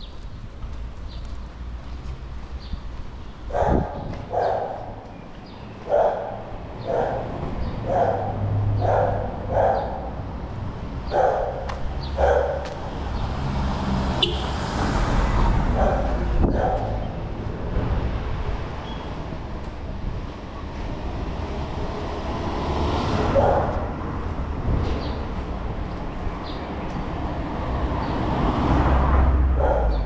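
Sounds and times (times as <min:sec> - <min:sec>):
low rumble of street traffic: 0:00.0 - 0:30.0
dog barking: 0:03.5 - 0:05.0, 0:05.8 - 0:10.2, 0:11.1 - 0:12.8, 0:15.7 - 0:17.0, 0:23.3 - 0:23.9, 0:29.5 - 0:30.0.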